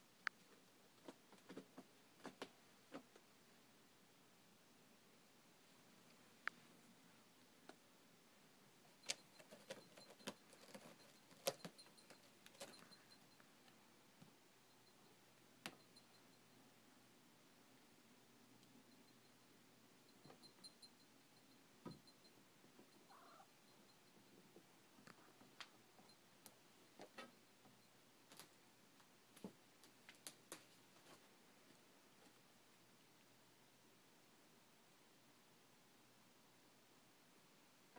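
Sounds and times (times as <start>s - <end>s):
faint irregular clicks: 8.8s - 16.6s, 20.1s - 32.4s
cat scratching a carpeted post: 9.1s - 12.8s.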